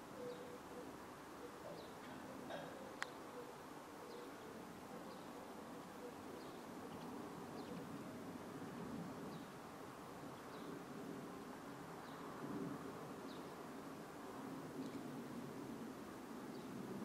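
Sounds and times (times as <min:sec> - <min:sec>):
faint bird chirps: 0:00.0 - 0:08.0.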